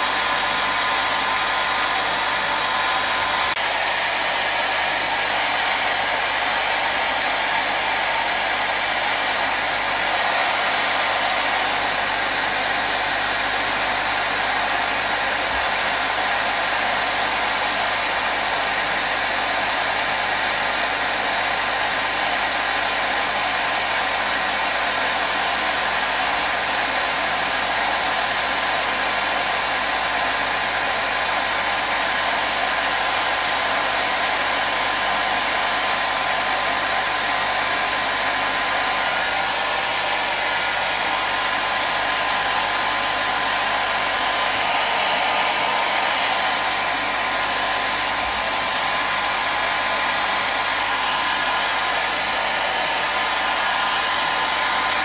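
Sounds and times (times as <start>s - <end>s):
hair dryer blowing: 0.0s - 55.0s.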